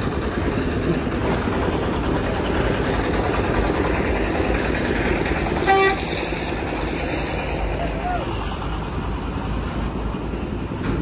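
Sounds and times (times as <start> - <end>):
truck engines idling: 0.0 - 11.0
truck horn toot: 5.6 - 6.1.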